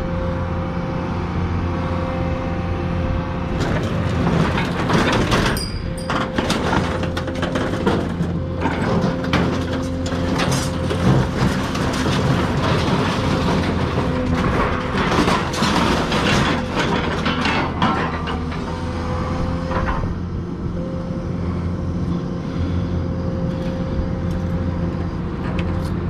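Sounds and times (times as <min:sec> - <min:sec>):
engine running: 0:00.0 - 0:26.0
scrap metal clattering and scraping: 0:03.6 - 0:19.0.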